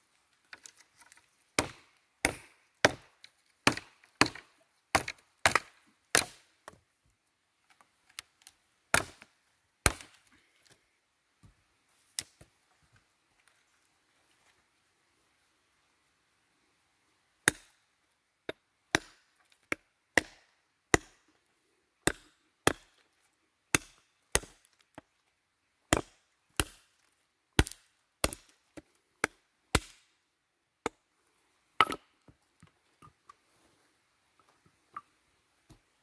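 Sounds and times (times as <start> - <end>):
knife chopping wood: 1.6 - 6.4, 8.9 - 9.3, 9.9 - 10.2, 18.5 - 21.2, 22.0 - 22.9, 23.7 - 24.6, 25.9 - 26.9, 27.6 - 30.0, 31.8 - 32.0.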